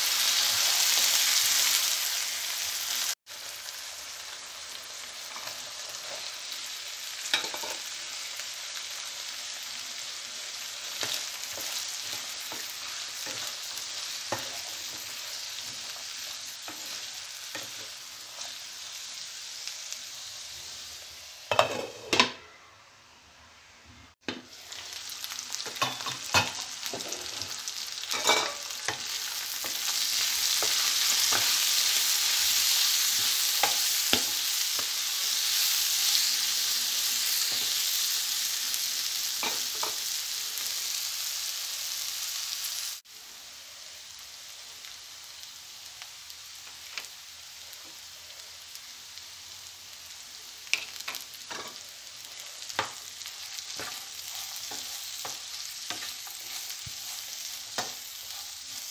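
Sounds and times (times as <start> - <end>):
vegetables sizzling in a pan: 0.0 - 58.9
spatula stirring and scraping pan: 10.0 - 19.2, 24.2 - 38.1, 50.7 - 58.9.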